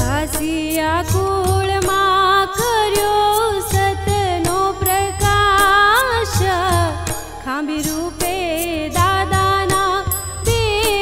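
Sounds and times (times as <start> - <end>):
percussion strokes: 0.0 - 11.0
woman singing: 0.0 - 11.0.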